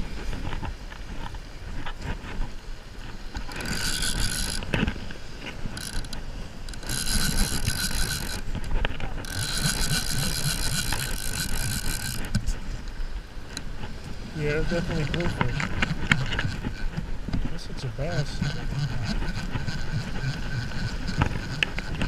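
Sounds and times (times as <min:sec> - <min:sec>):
fishing reel gears whirring: 0:03.2 - 0:12.5, 0:14.5 - 0:17.0, 0:18.0 - 0:22.0.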